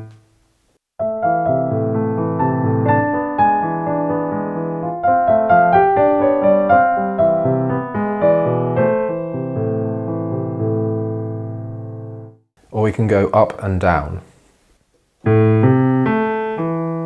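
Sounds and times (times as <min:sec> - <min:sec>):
piano playing descending arpeggios: 0:01.0 - 0:12.4, 0:15.2 - 0:17.0.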